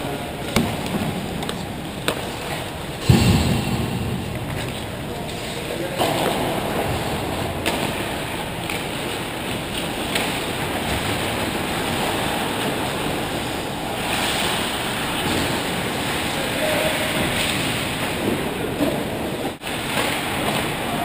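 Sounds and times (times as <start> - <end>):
skating rushing noise: 0.4 - 21.0.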